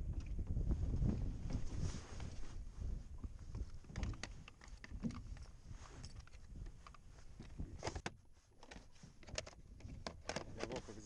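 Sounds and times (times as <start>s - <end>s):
plastic tackle clicking and knocking: 6.2s - 10.8s.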